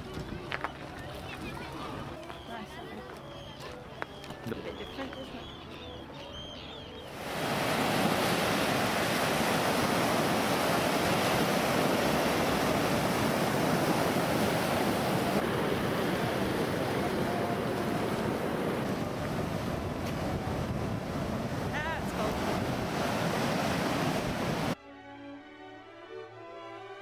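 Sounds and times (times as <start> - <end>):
waves washing on pebble beach: 7.2 - 24.8.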